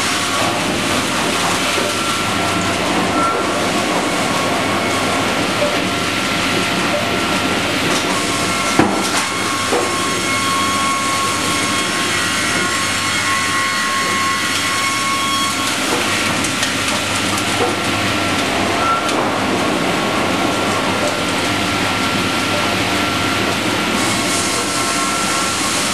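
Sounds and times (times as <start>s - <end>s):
conveyor mechanical rumble: 15.5s - 25.9s.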